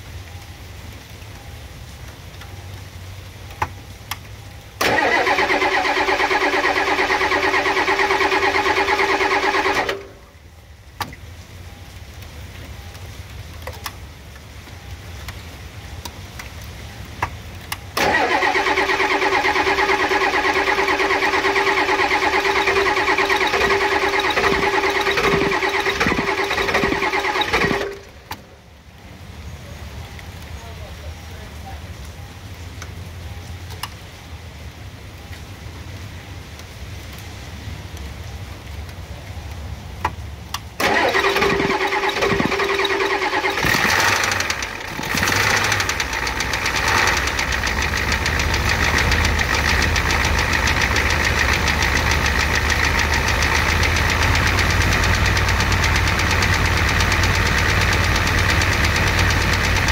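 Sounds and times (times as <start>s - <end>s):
starter motor cranking diesel engine: 4.8s - 10.2s, 18.0s - 28.4s, 40.8s - 59.9s.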